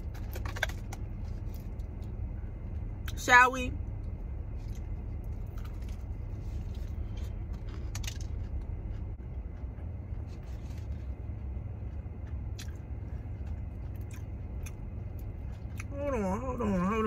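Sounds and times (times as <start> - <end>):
car engine idling hum: 0.0 - 17.0
chewing crispy chicken: 4.6 - 16.2.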